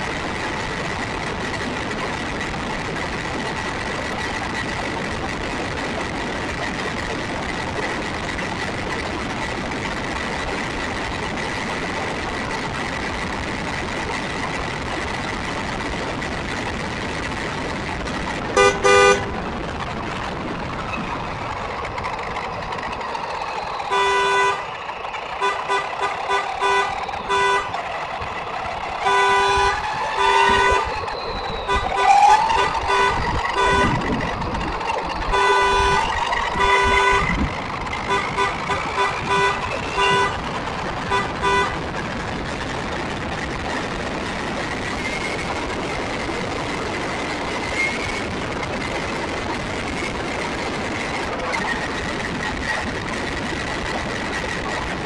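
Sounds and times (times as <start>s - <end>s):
rc car motor and tyre noise: 0.0s - 55.0s
road traffic engines: 0.0s - 55.0s
vehicle horn honking: 18.6s - 19.4s, 23.9s - 24.7s, 25.4s - 27.8s, 29.0s - 31.0s, 31.6s - 34.1s, 35.2s - 37.4s, 38.1s - 40.4s, 41.0s - 41.8s.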